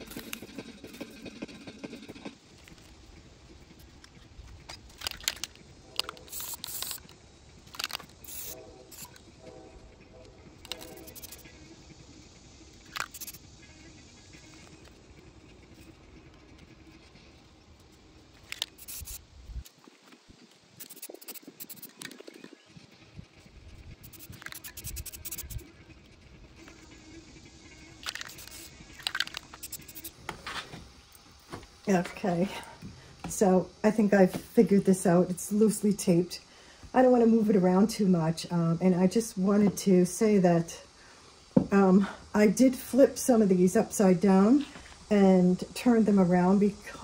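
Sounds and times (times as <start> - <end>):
aerosol spray can hissing: 0.0 - 2.3, 4.9 - 9.4, 10.6 - 11.7, 12.6 - 14.9, 18.4 - 19.6, 20.7 - 22.2, 23.9 - 25.6, 26.6 - 30.6
spray can clicks: 5.0 - 7.1, 7.8 - 9.1.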